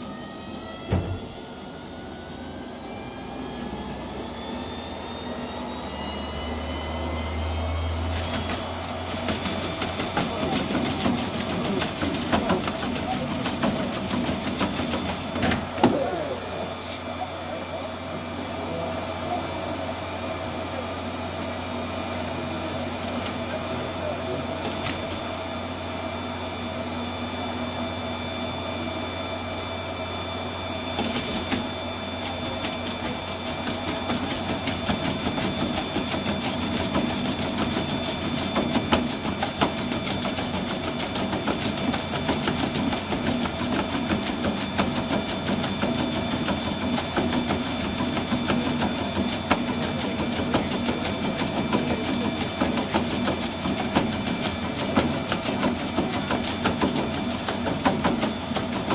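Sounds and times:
treadmill motor hum: 0:00.0 - 0:58.9.

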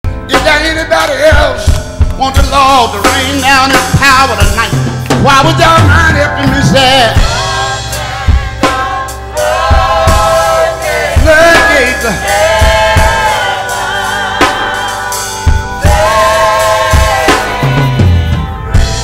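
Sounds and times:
drum kit: 0:00.0 - 0:19.0
choir singing gospel: 0:05.6 - 0:19.0.

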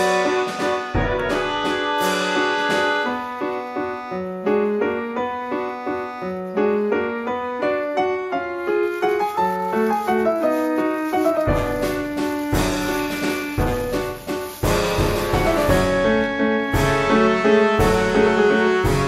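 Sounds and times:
piano music: 0:00.0 - 0:19.0
plastic bag crinkling: 0:08.4 - 0:16.3.

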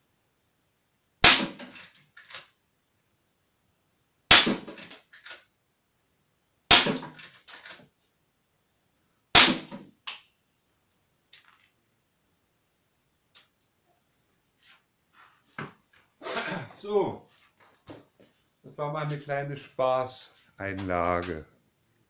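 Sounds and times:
rifle shots: 0:01.2 - 0:01.7, 0:04.3 - 0:04.8, 0:06.7 - 0:07.2, 0:09.4 - 0:09.8.

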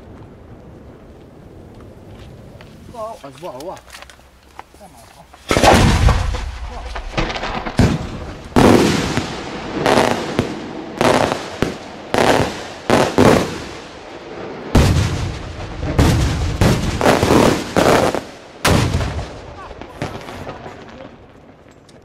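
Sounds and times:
fireworks bangs with echo: 0:05.5 - 0:21.7.

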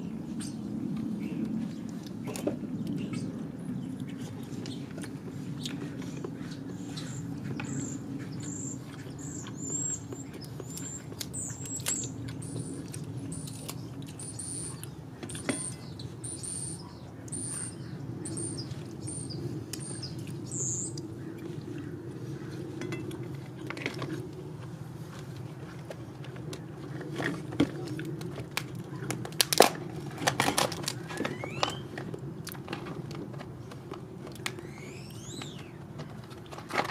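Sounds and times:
steady low hum: 0:00.0 - 0:36.9
small bird chirping: 0:06.9 - 0:21.0.

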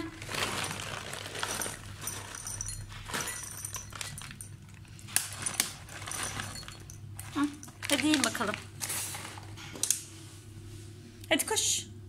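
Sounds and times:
kibble rattling into a bowl: 0:00.1 - 0:09.6.

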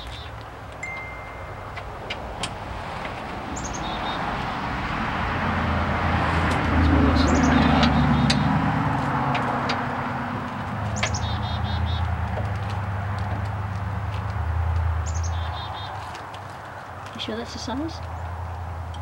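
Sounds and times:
small birds chirping: 0:00.0 - 0:00.5, 0:03.5 - 0:04.3, 0:06.8 - 0:08.6, 0:10.6 - 0:13.9, 0:15.0 - 0:18.4
passing vehicle hum: 0:00.0 - 0:19.0.

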